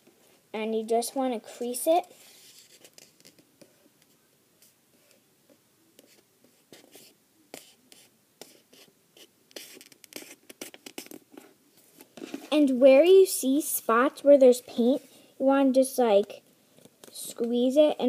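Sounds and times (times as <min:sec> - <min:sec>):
fingers creasing paper: 0:06.0 - 0:11.4.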